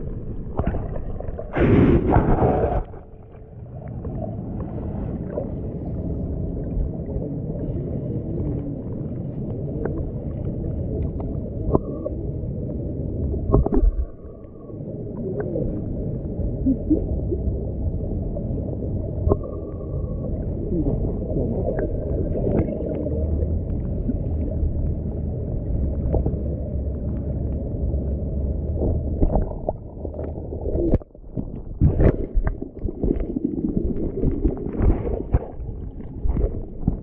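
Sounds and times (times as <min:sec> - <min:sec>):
muffled underwater water rush: 0:00.0 - 0:37.0
underwater clicks and knocks: 0:13.4 - 0:14.2, 0:28.7 - 0:37.0.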